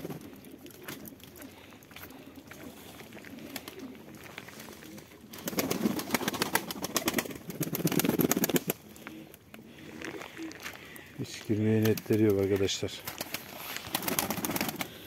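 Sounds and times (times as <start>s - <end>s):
pigeons cooing: 0.0s - 15.0s
rapid clicks and rustling: 5.4s - 9.5s.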